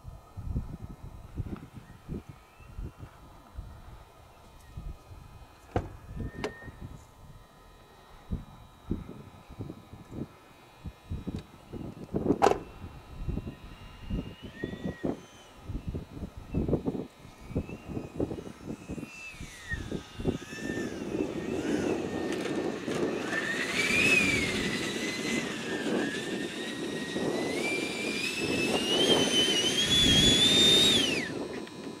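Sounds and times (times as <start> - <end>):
model jet turbine whining: 0.0 - 32.0
rushing exhaust: 5.3 - 32.0.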